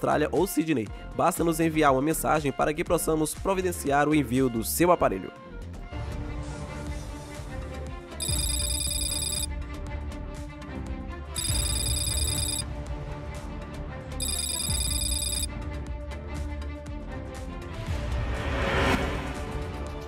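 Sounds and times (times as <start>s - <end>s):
electronic telephone ring: 8.2s - 9.5s, 11.4s - 12.7s, 14.2s - 15.5s.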